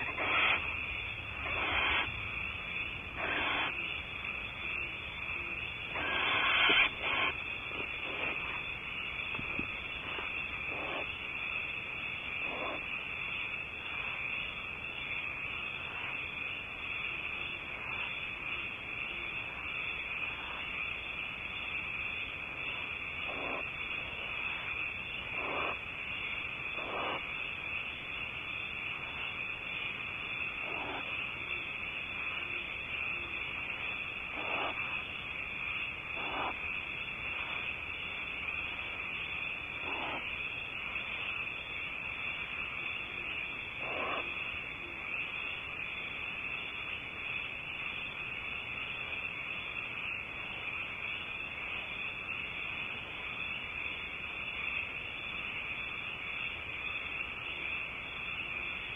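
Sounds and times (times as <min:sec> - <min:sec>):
barn owl rasping: 0:00.0 - 0:00.7, 0:01.3 - 0:02.2, 0:03.1 - 0:03.9, 0:05.4 - 0:08.7, 0:09.4 - 0:11.2, 0:25.3 - 0:25.8, 0:26.8 - 0:27.3, 0:30.6 - 0:31.2, 0:34.3 - 0:35.0, 0:36.2 - 0:36.6, 0:39.8 - 0:40.3, 0:43.8 - 0:44.3
steady high hiss: 0:00.0 - 0:58.9.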